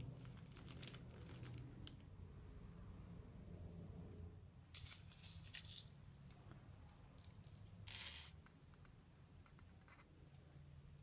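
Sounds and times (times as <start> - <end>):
candy sprinkles rattling: 4.8 - 6.0.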